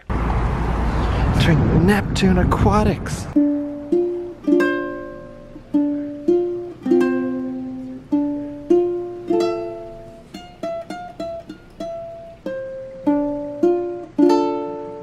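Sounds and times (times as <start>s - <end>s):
ukulele music: 3.4s - 15.0s.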